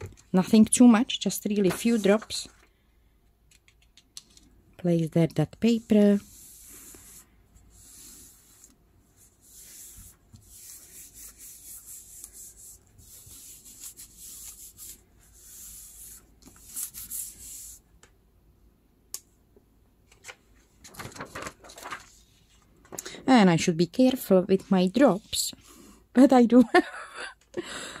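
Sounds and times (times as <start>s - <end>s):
hands rubbing paper: 5.6s - 17.8s.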